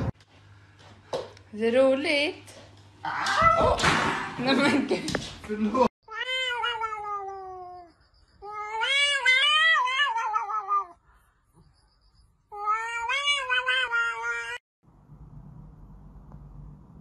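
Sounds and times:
cat yowling: 6.1 - 11.0, 12.5 - 14.6.

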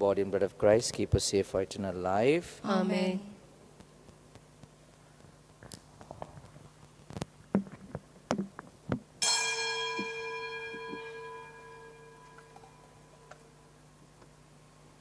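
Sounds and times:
bell-like metallic strike ringing: 9.2 - 13.8
metal vessels clicking and knocking: 12.2 - 13.4.

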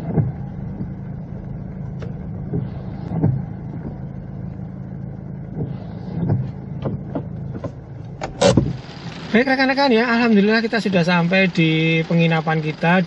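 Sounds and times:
car knocks and thumps: 0.0 - 4.7, 5.4 - 9.2
diesel engine running at low revs: 0.0 - 13.0.

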